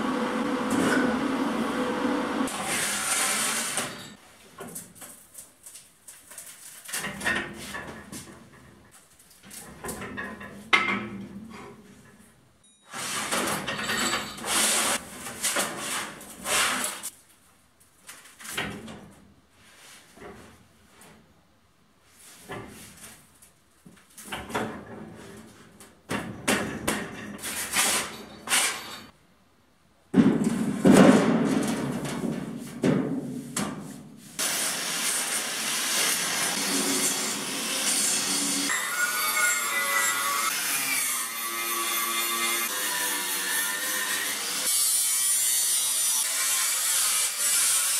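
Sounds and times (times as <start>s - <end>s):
angle grinder grinding steel: 34.4s - 47.9s.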